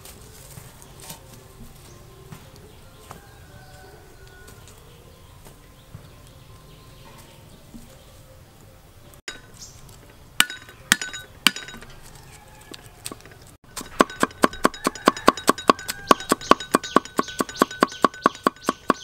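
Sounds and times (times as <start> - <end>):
cleaver chopping on wooden board: 13.1 - 19.0.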